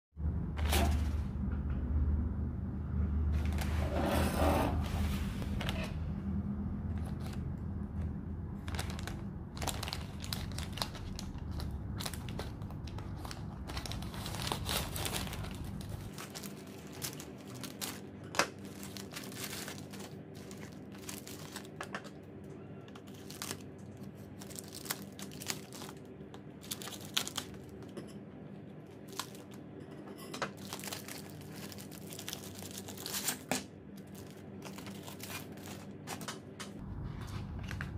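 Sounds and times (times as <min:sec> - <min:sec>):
plastic tearing: 0:05.4 - 0:06.0, 0:08.6 - 0:22.1, 0:22.9 - 0:27.8, 0:29.0 - 0:29.6, 0:30.6 - 0:36.4
plastic wrapping crinkling: 0:06.9 - 0:22.2, 0:22.9 - 0:27.9, 0:29.0 - 0:29.6, 0:30.5 - 0:37.9.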